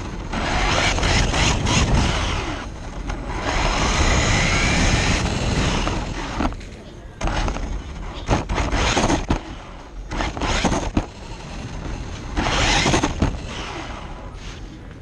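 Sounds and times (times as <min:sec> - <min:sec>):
toy truck motor and tyre noise: 0:00.0 - 0:15.0
chassis knocks: 0:04.9 - 0:13.8.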